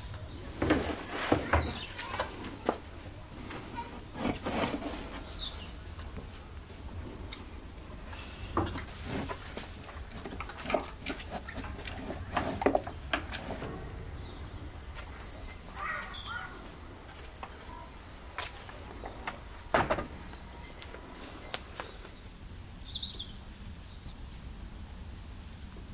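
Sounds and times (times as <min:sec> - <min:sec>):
small birds chirping: 0:00.0 - 0:25.9
animal munching fruit: 0:08.2 - 0:14.2.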